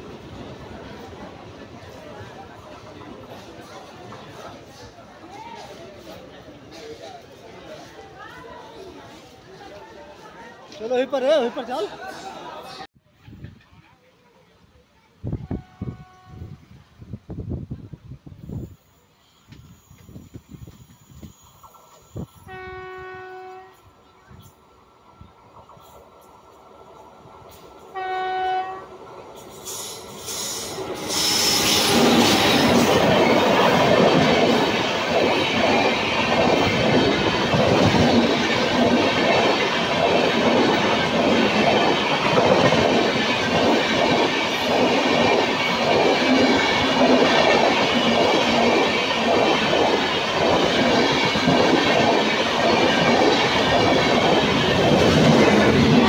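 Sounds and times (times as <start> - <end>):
train passing at speed: 0.0 - 13.9, 15.2 - 56.0
wheels clickety-clack over rail joints: 0.0 - 13.9, 25.4 - 56.0.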